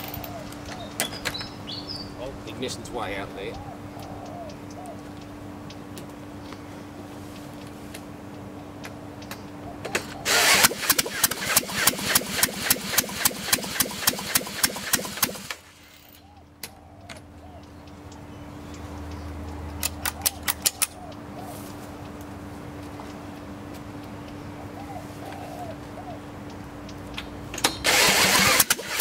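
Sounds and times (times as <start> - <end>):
sharp clicks: 8.8 - 21.2
engine cranked by electric drill: 10.2 - 16.2, 27.6 - 29.0.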